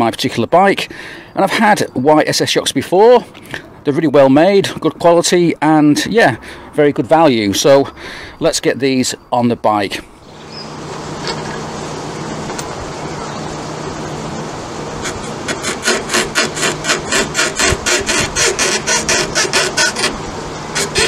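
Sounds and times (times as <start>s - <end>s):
steady low hum: 9.9s - 21.0s
metal rasping on metal: 15.0s - 21.0s.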